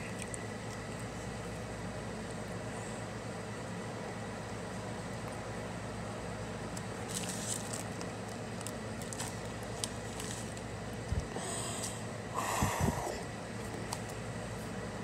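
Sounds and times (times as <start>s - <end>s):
steady low hum: 0.0s - 15.0s
person blowing out breath: 11.3s - 13.2s.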